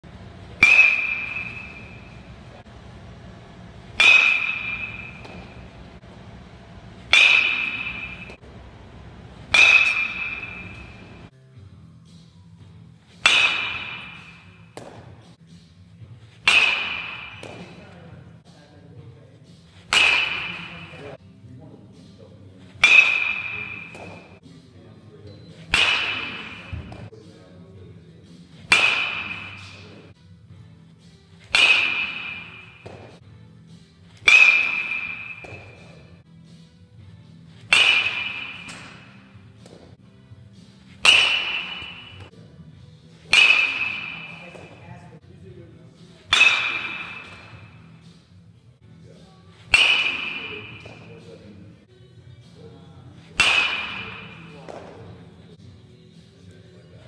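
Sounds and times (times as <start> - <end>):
bat hitting ball: 0.4 - 2.5, 3.8 - 6.0, 7.0 - 11.3, 13.1 - 15.3, 16.4 - 18.0, 19.7 - 21.2, 22.6 - 24.4, 25.5 - 27.1, 28.6 - 30.1, 31.4 - 33.2, 34.1 - 36.2, 37.5 - 39.9, 40.6 - 42.3, 43.2 - 44.8, 46.3 - 48.2, 49.5 - 51.3, 53.2 - 55.4.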